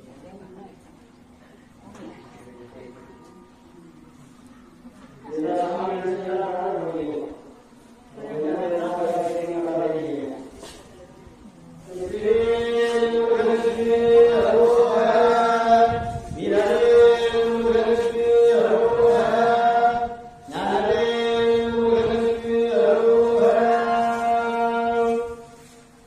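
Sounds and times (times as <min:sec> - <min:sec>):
mantras chanted on one pitch: 0:05.2 - 0:10.6, 0:11.8 - 0:26.0.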